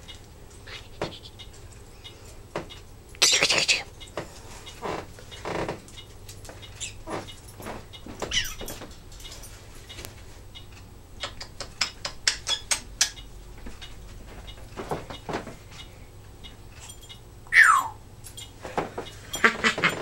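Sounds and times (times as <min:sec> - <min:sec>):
parrot clicking: 0:10.6 - 0:14.0
parrot falling whistle: 0:17.5 - 0:18.0.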